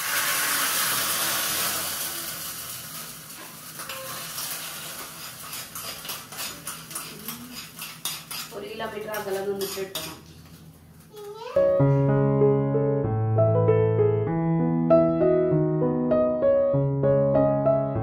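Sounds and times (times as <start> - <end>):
hot oil sizzling in curry: 0.0 - 10.7
metal spoon scraping pan: 3.8 - 10.3.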